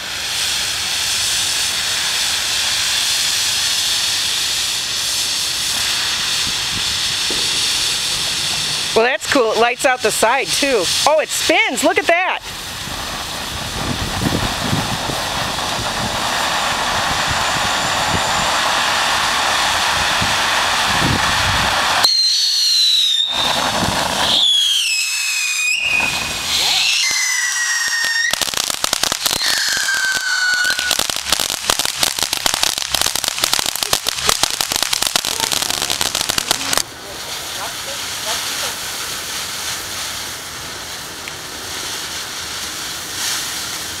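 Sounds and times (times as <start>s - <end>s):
firework crackling: 0.0s - 44.0s
firework fountain hissing: 0.0s - 44.0s
firework whistles falling in pitch: 13.8s - 36.8s.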